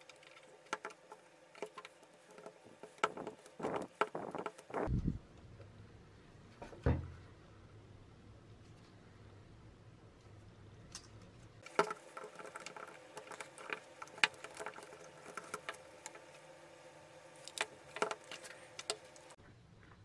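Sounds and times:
clicks and scrapes of small parts: 0.0 - 4.9, 10.8 - 16.4, 17.4 - 19.4.

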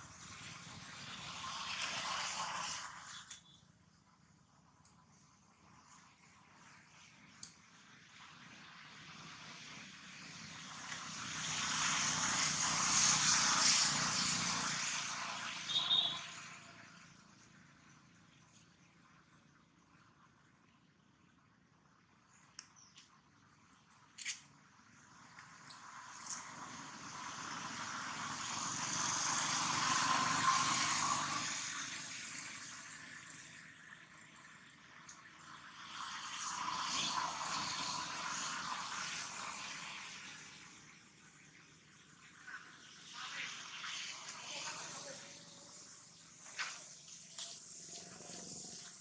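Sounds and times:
engine passing: 8.0 - 18.2, 24.2 - 49.0.

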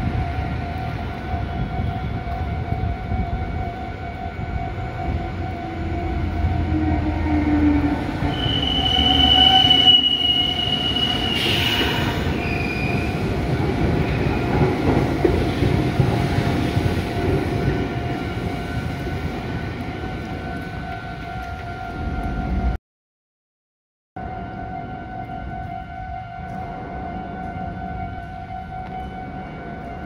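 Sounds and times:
train wheels rumbling over rails: 0.0 - 22.6
level-crossing alarm tones: 0.0 - 22.8
train wheel squeal: 6.5 - 13.2.

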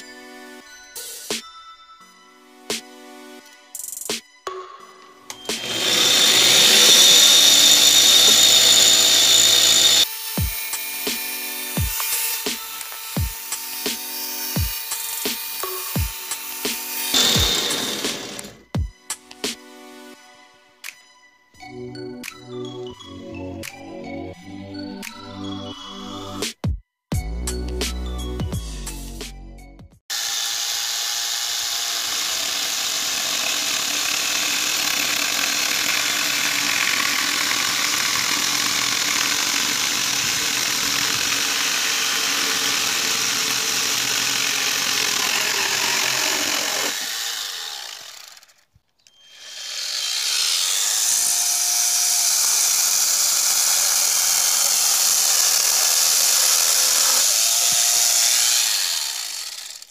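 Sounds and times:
angle grinder motor: 5.3 - 18.6, 30.1 - 59.9
chainsaw chain cutting dry wood: 5.4 - 18.6, 30.1 - 59.9.

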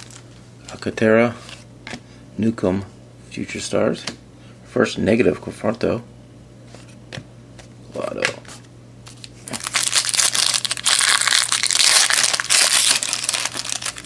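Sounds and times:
foil wrapper tearing and crinkling: 0.0 - 0.2, 9.1 - 14.0.

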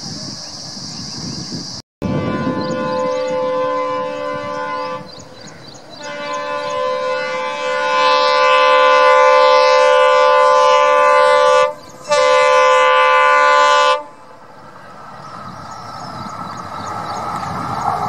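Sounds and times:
locomotive air horn blasts: 2.0 - 5.3, 6.0 - 14.2.

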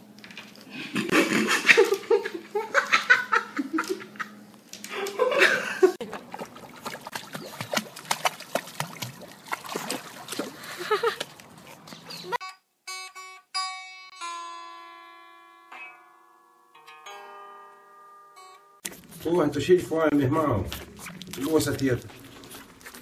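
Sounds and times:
people laughing: 0.8 - 6.1, 10.6 - 11.3
dog splashing in pool water: 5.9 - 12.4.

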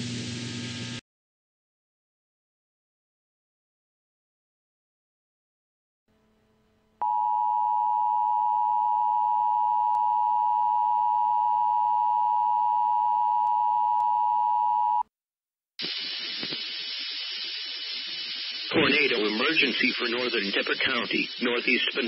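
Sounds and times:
radio static hiss: 15.8 - 22.0.

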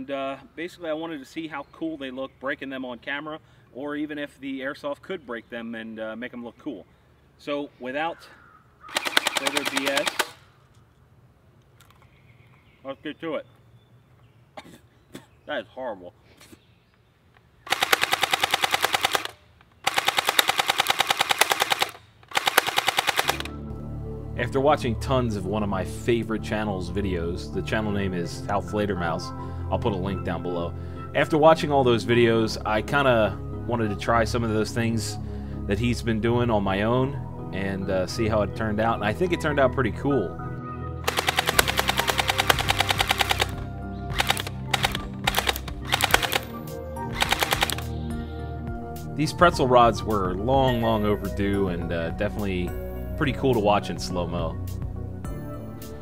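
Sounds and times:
airsoft gun firing bursts: 8.9 - 10.4, 17.7 - 23.5, 41.1 - 47.9
background music: 8.9 - 10.4, 22.4 - 56.0.

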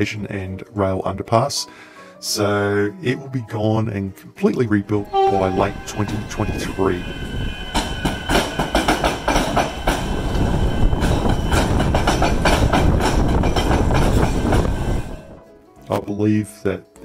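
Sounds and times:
train running gear rumble: 5.0 - 15.4
train wheels clattering: 5.2 - 15.3.

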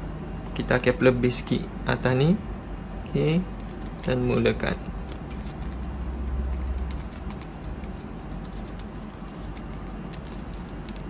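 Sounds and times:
grip tape rustling and clicking: 5.0 - 11.0.

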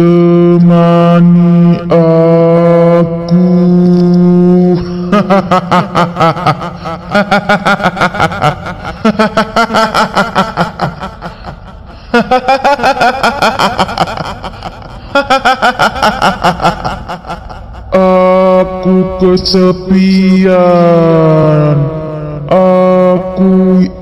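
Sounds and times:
woman cackling laugh: 4.8 - 18.0.

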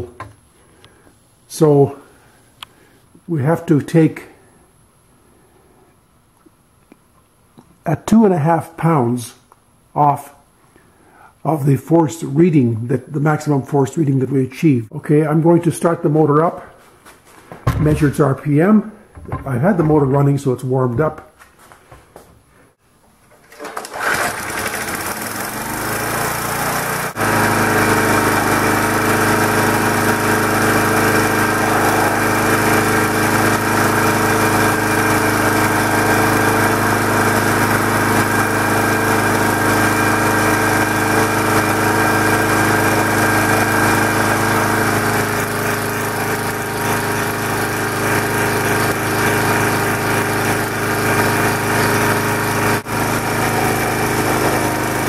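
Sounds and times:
small gasoline engine running: 23.5 - 55.0.

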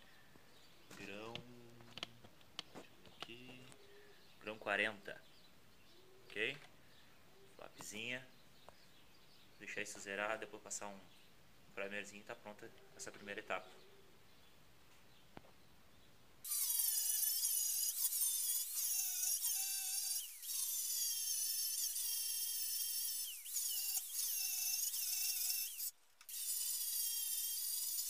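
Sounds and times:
angle grinder grinding steel: 16.5 - 28.0.

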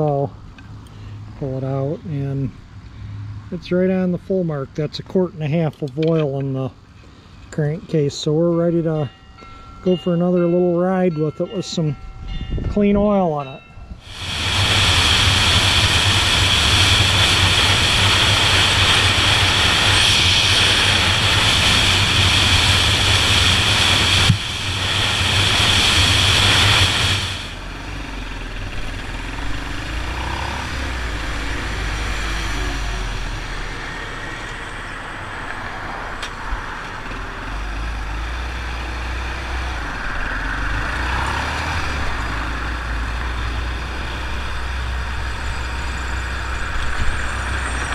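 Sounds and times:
wind noise on microphone: 12.0 - 27.6
motorcycle engine running: 14.0 - 34.2.

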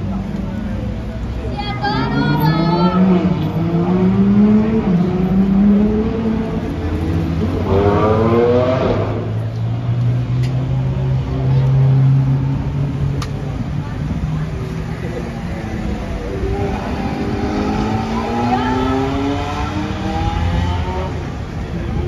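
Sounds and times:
car engines running: 0.0 - 22.0
engine revving: 2.5 - 9.4, 16.3 - 21.3.

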